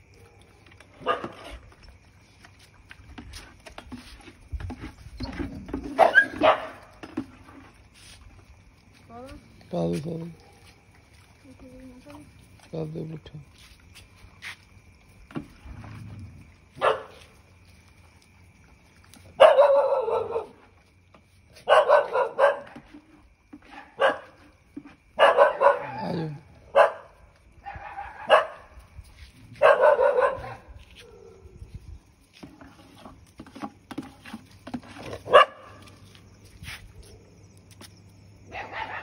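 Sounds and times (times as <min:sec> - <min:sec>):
dogs barking: 0:01.0 - 0:01.6, 0:05.9 - 0:06.9, 0:16.8 - 0:17.3, 0:19.4 - 0:20.6, 0:21.6 - 0:22.8, 0:23.6 - 0:24.4, 0:25.2 - 0:28.7, 0:29.6 - 0:31.4, 0:35.2 - 0:35.9, 0:38.5 - 0:39.0.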